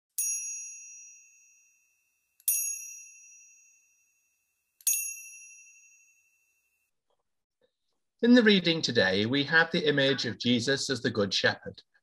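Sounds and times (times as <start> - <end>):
small bell ringing: 0.1 - 6.9.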